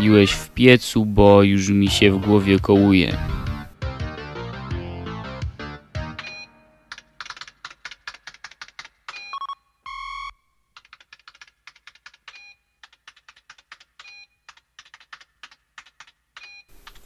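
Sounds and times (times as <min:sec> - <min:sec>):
rapid keyboard typing with blips: 0:06.2 - 0:17.0.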